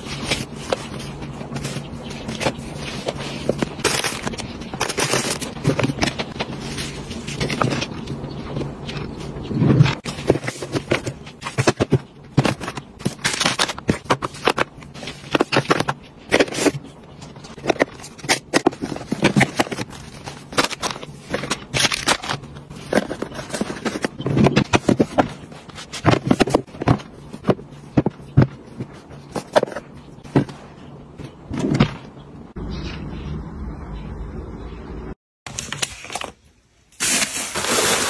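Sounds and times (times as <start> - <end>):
boxes tapping and scraping in drawer: 9.7 - 32.1.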